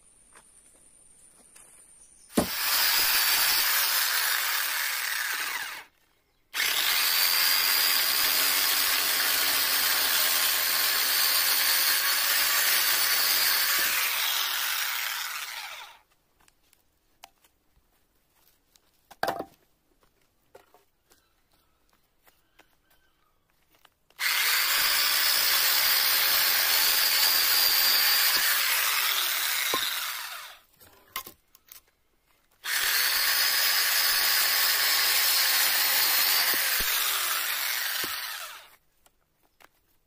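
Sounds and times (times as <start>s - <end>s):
electric chainsaw cutting log: 2.3s - 6.0s, 6.6s - 16.0s, 24.2s - 30.7s, 32.6s - 38.8s.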